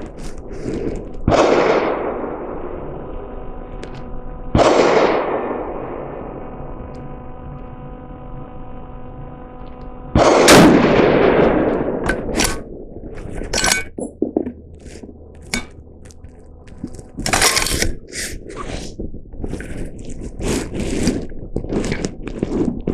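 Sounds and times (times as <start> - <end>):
steady tone: 0.0 - 19.3
rifle shot: 1.2 - 2.8, 4.5 - 6.3, 10.2 - 12.9.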